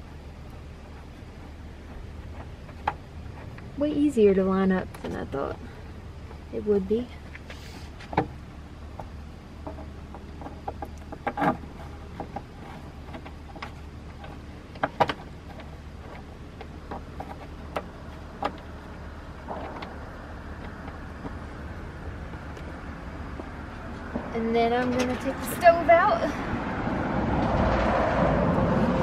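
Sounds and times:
steady low hum: 0:00.0 - 0:29.0
clicks and knocks on wood: 0:08.0 - 0:18.7.

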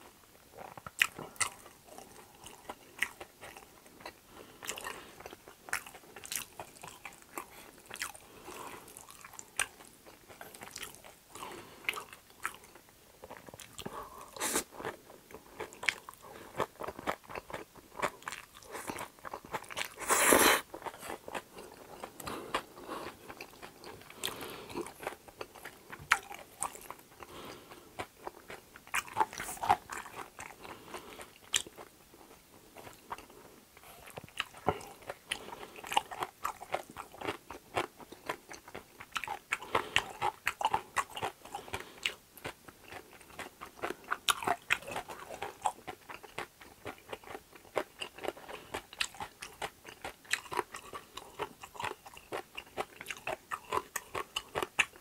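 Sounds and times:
chewing and crunching: 0:00.0 - 0:55.0
loud slurp of noodles: 0:20.0 - 0:20.6.

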